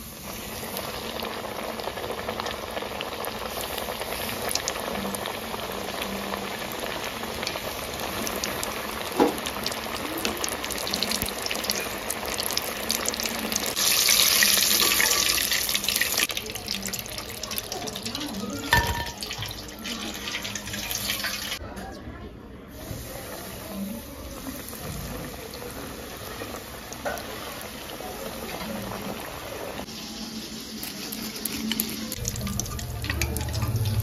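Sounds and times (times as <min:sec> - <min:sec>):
chicken deep-frying in oil: 0:00.0 - 0:22.0, 0:22.7 - 0:34.0.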